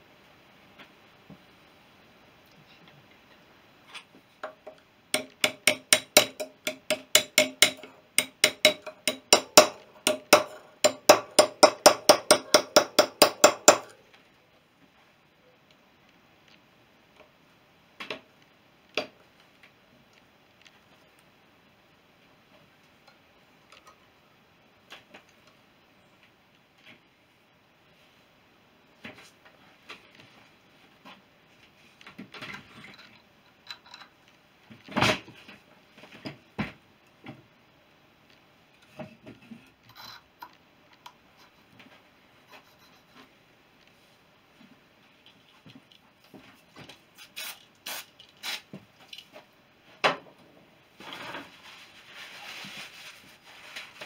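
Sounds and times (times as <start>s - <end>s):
hammer striking metal punch: 5.2s - 13.9s
faint rustling: 51.0s - 54.0s.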